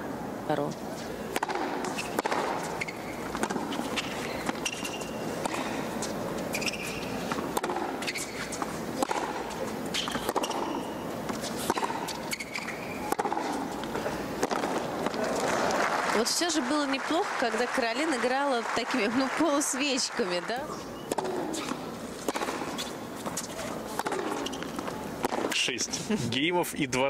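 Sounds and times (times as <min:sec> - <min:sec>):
racket hitting ball: 0:01.3 - 0:15.8, 0:21.1 - 0:25.7
sneaker squeaks on court: 0:01.9 - 0:05.8, 0:06.5 - 0:13.7, 0:20.7 - 0:25.6
crowd murmur: 0:13.7 - 0:22.0.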